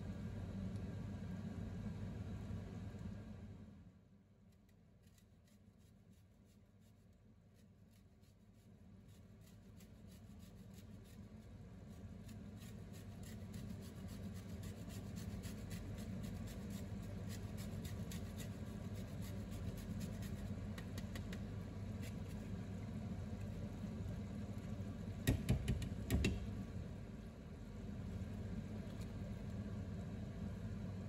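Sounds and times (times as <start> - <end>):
steady low hum: 0.0 - 31.0
lemon rind scraping on grater: 12.0 - 20.6.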